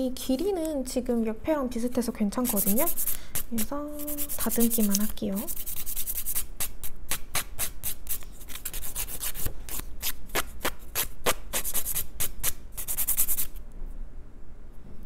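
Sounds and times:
nail file rasping on fingernail: 2.4s - 13.5s.

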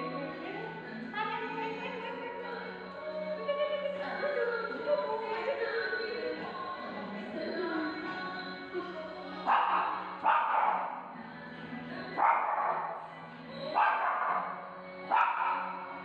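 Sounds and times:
background music: 0.0s - 16.0s
small dog barking: 9.5s - 11.0s, 12.2s - 12.9s, 13.8s - 14.5s, 15.1s - 15.7s.

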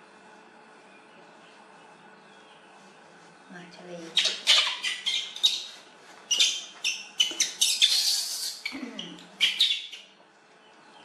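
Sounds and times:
baby monkey squeaking and squealing: 4.1s - 10.1s.

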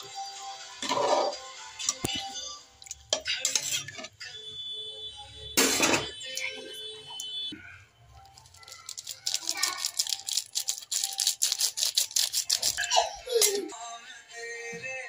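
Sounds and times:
ladle clinking and scraping pot: 0.8s - 1.4s, 3.2s - 4.2s.

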